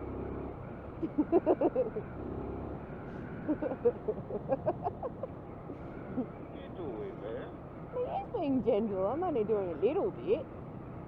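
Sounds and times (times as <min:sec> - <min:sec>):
motorcycle engine running: 0:00.0 - 0:06.6.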